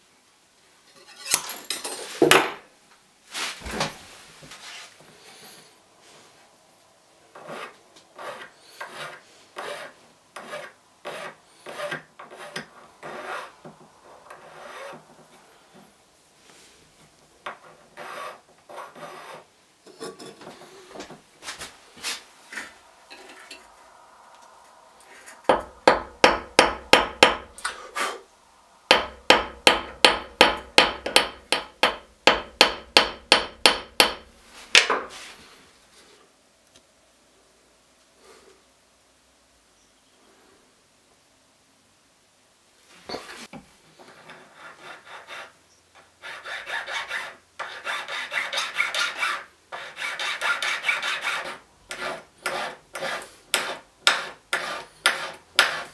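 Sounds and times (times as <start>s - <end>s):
file scraping metal: 0.9s - 1.5s, 7.4s - 13.5s, 14.3s - 15.0s, 17.5s - 20.6s, 44.1s - 45.6s, 46.2s - 55.9s
hammer blows on steel anvil: 25.4s - 27.7s.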